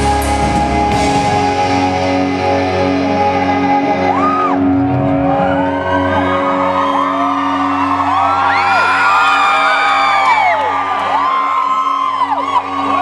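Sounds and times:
electric guitar chord ringing: 0.0s - 6.6s
crowd whistling and whooping: 3.8s - 13.0s.

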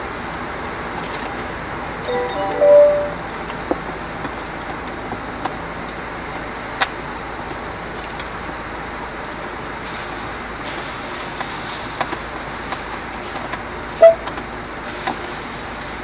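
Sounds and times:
short electronic beep: 2.1s - 3.3s.

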